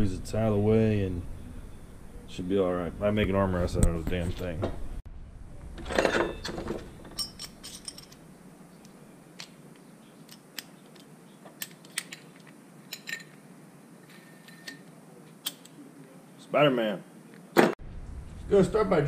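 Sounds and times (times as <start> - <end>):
metal tools clicking and clinking: 5.8 - 9.6, 10.2 - 13.4, 14.0 - 15.8.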